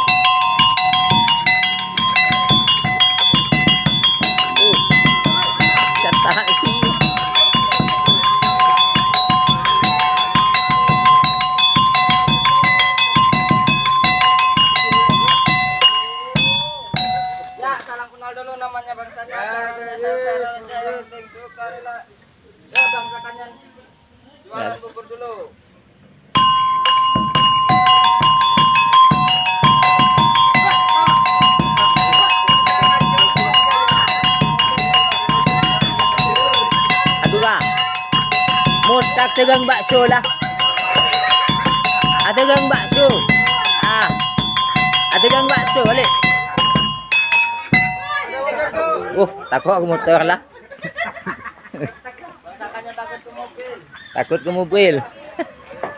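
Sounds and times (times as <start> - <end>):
bass drum beats: 0.0 - 17.8, 26.4 - 48.3
metal pot-gongs struck with sticks: 0.0 - 17.8, 22.8 - 23.6, 26.4 - 48.3
ringing metal notes: 0.0 - 18.1, 22.7 - 24.2, 26.3 - 48.8.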